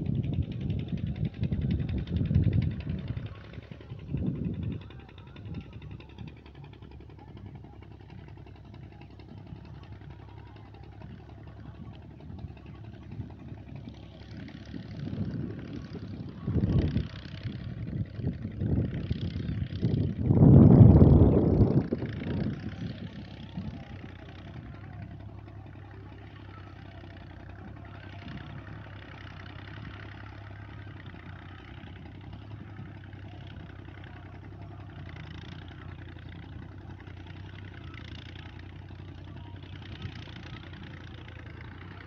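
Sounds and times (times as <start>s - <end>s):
boat engine droning: 0.0s - 42.0s
wind rushing on microphone: 15.0s - 23.7s.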